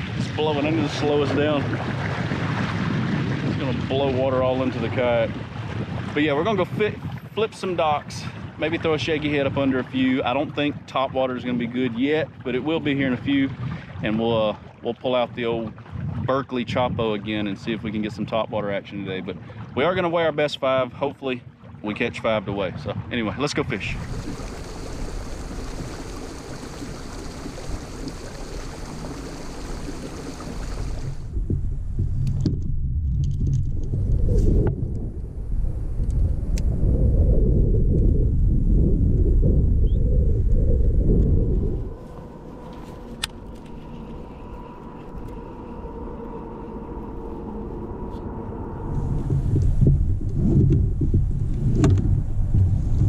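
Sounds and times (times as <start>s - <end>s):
wind on microphone: 0.0s - 20.0s, 21.6s - 53.0s
water hissing along hull: 23.7s - 31.3s, 41.8s - 50.6s
faint steady hum: 23.8s - 53.0s.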